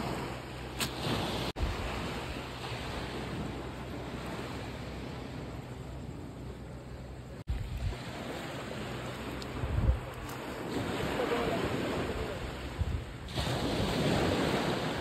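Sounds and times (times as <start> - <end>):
sea surf washing on beach: 0.0 - 6.3, 7.4 - 15.0
wind buffeting microphone: 0.0 - 6.6, 7.3 - 15.0.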